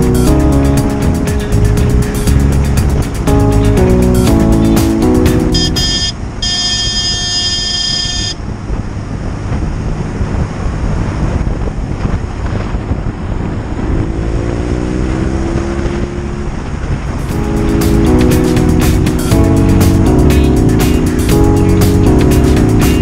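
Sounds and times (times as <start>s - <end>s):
wind rush: 0.0s - 6.4s, 8.2s - 23.0s
held music chord: 0.0s - 7.3s, 17.1s - 23.0s
motorcycle engine cruising: 0.0s - 23.0s.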